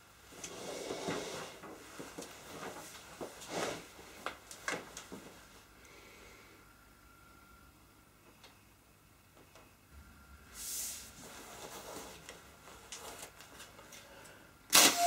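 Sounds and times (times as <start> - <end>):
clothes rustling: 0.3 - 5.7.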